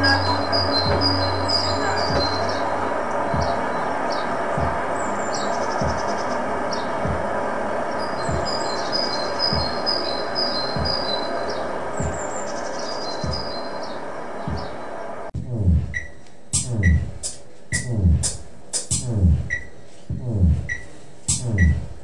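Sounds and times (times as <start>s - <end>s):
dark ambient noise music: 0.0s - 22.0s
deep falling bass thud: 3.2s - 3.7s, 4.6s - 5.0s, 7.0s - 7.4s, 8.2s - 8.8s, 15.4s - 16.0s, 16.6s - 17.2s, 17.8s - 18.4s, 19.0s - 20.8s, 21.4s - 21.9s
bird-like chirps: 7.9s - 15.0s.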